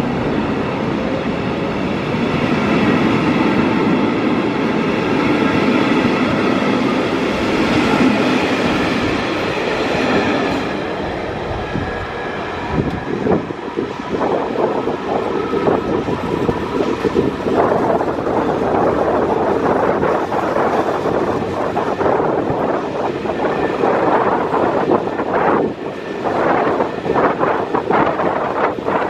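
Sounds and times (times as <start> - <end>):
train wheels rumbling on rail: 0.0 - 29.0.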